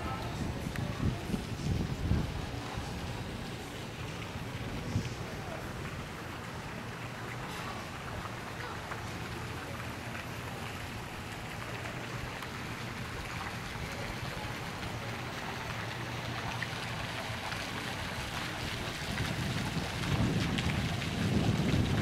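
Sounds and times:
splashing water hiss: 0.0s - 22.0s.

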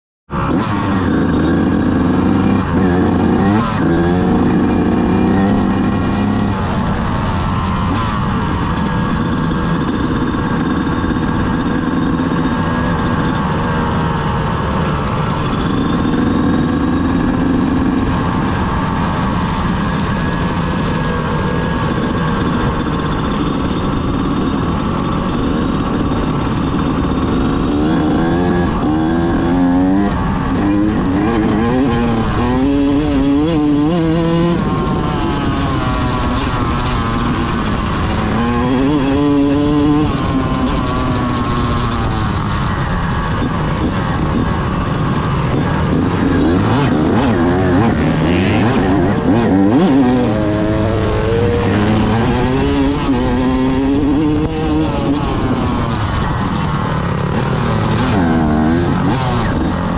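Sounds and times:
dirt bike engine revving: 0.3s - 59.9s.

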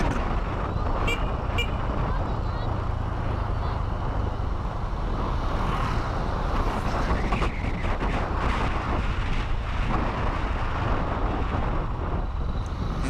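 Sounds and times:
vehicle road noise: 0.0s - 13.0s
wind rumbling on microphone: 0.0s - 13.0s.

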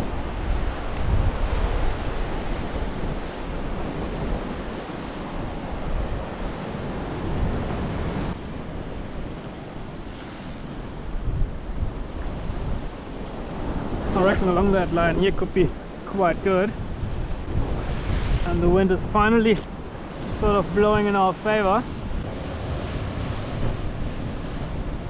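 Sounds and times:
surf washing on rocky shore: 0.0s - 25.0s
wind rumbling on microphone: 0.0s - 25.0s.

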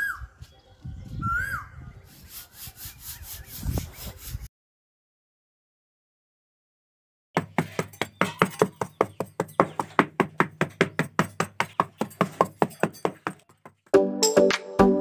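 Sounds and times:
metal trowel tapping sand: 7.4s - 13.8s.

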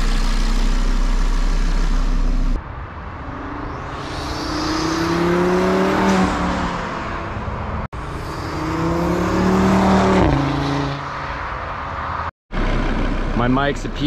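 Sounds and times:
car engine accelerating hard: 3.7s - 6.9s, 7.9s - 11.0s.

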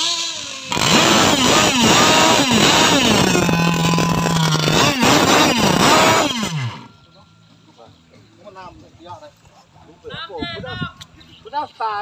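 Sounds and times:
small two-stroke engines revving: 0.0s - 7.0s.

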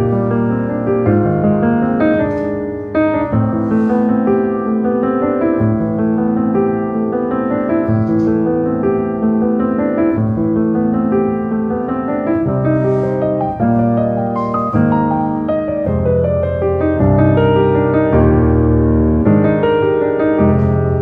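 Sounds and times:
gentle piano music: 0.0s - 21.0s.

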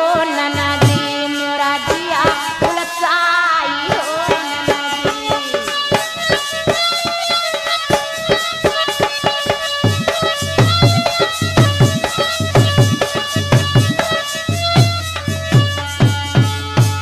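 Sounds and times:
person singing: 0.0s - 6.8s
hand drums beating: 0.0s - 17.0s.

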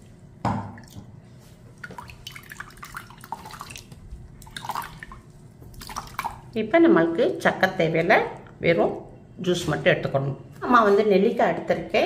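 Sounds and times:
wet pulp squelching in a strainer: 0.0s - 6.6s.

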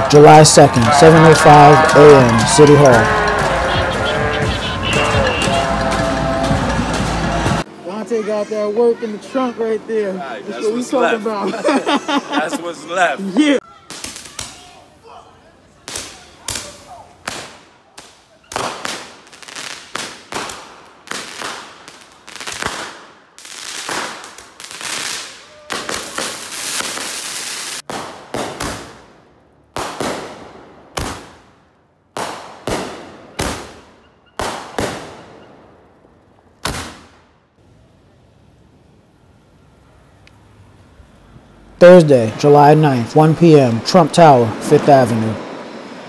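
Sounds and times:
firecrackers crackling rapidly: 0.0s - 7.7s, 13.7s - 15.1s, 15.8s - 35.5s
fireworks banging: 0.0s - 7.7s, 15.8s - 35.8s.

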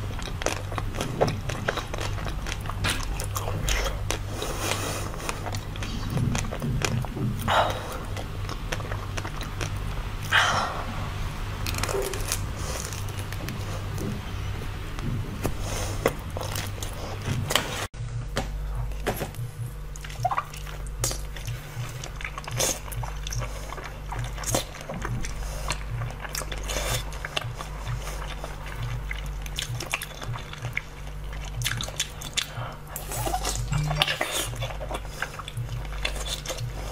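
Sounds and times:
wet sticky chewing and biting: 0.0s - 10.0s, 19.8s - 36.9s
low pulsing background beat: 0.0s - 10.3s, 12.4s - 36.9s.

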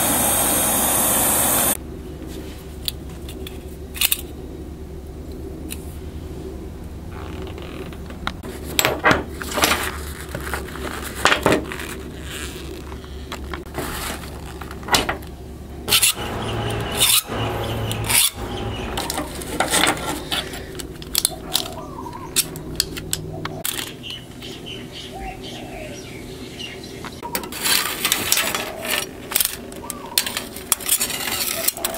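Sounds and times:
low steady hum: 0.0s - 31.5s
metal tools clinking and scraping: 15.9s - 24.0s, 27.3s - 31.9s.

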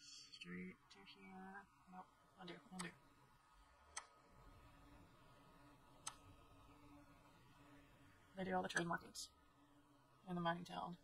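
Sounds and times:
computer mouse click: 3.9s - 4.2s, 6.0s - 6.2s, 8.7s - 9.0s.

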